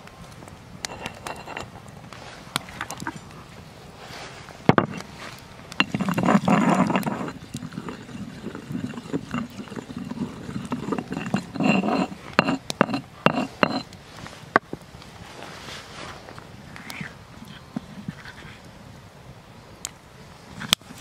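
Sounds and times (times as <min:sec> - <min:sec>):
pestle grinding in stone mortar: 0:04.7 - 0:05.1, 0:05.7 - 0:13.9.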